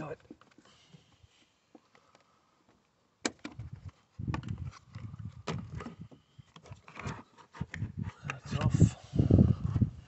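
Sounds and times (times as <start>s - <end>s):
plastic scraping: 3.6s - 8.2s.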